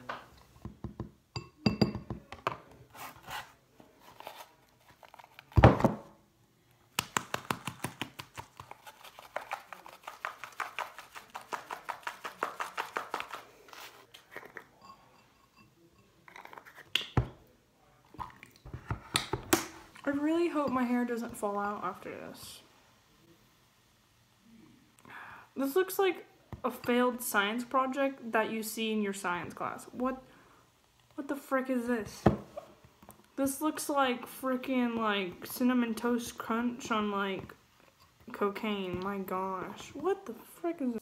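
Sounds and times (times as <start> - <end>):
spoon clinking and scraping in bowl: 14.2 - 16.9.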